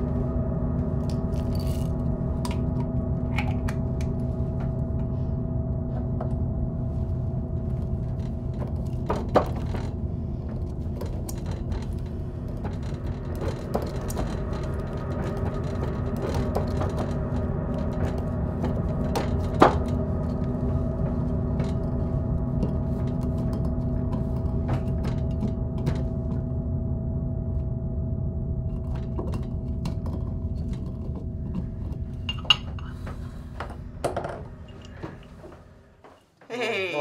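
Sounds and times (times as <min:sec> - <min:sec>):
steady low drone: 0:00.0 - 0:36.1
glassware clinking: 0:32.3 - 0:32.8.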